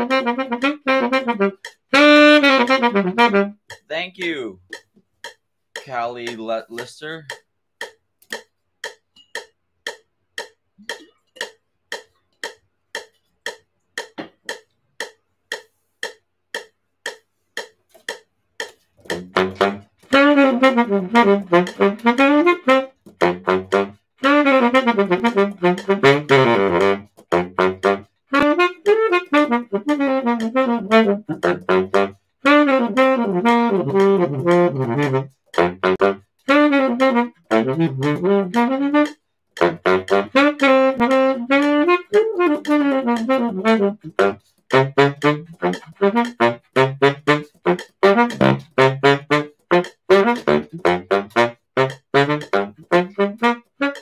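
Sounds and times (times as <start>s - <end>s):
baritone saxophone riffs: 0.0s - 4.2s, 19.1s - 54.0s
metronome clicking: 0.0s - 54.0s.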